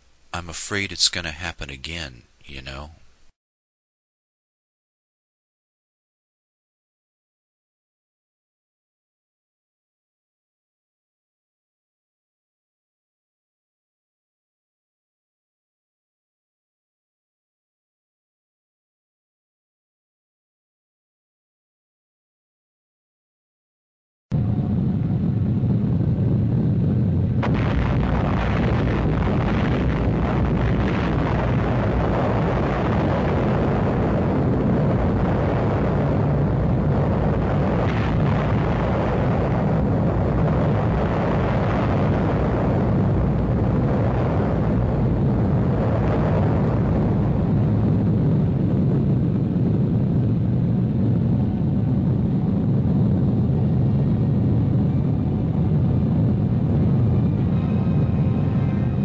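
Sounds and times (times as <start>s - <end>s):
loud low rumble: 24.3s - 59.0s.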